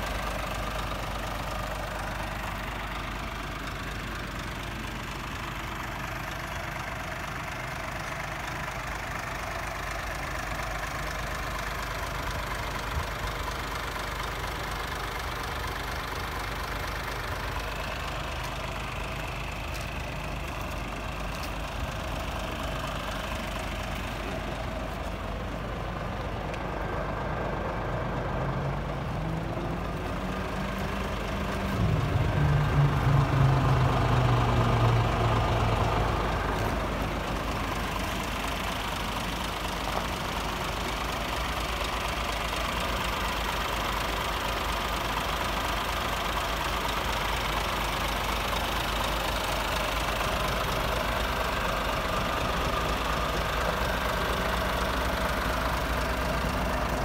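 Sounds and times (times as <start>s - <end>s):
diesel truck idling: 0.0s - 57.0s
deep hum: 27.0s - 37.6s.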